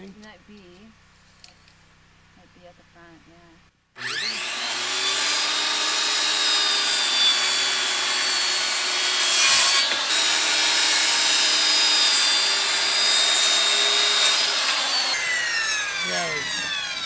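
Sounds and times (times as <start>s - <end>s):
circular saw cutting wood: 4.0s - 17.0s.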